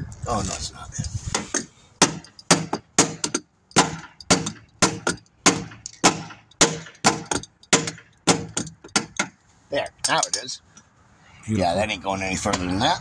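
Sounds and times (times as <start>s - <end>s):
hammer striking metal: 1.5s - 9.4s.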